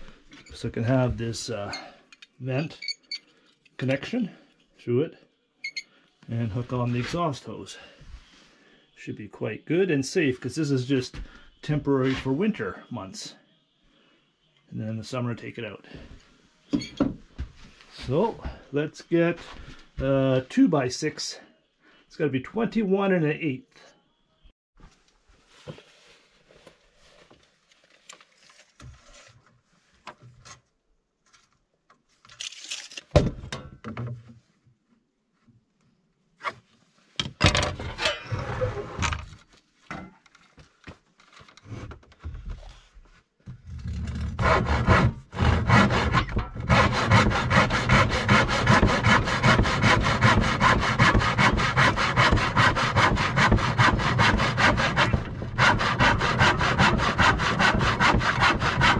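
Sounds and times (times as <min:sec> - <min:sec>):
knocks and scrapes: 0:37.2 - 0:47.0, 0:47.6 - 0:58.9
handsaw cutting wooden board: 0:43.9 - 0:58.9.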